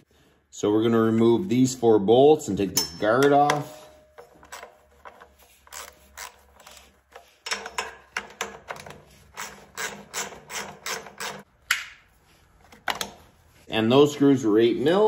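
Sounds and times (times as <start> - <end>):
ratchet wrench clicking: 5.6 - 11.5.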